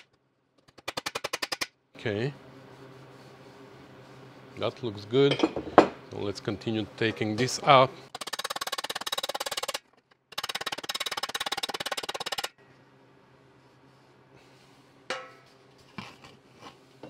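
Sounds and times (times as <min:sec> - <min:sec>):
hammer tapping metal wheel cover: 0:15.1 - 0:15.4.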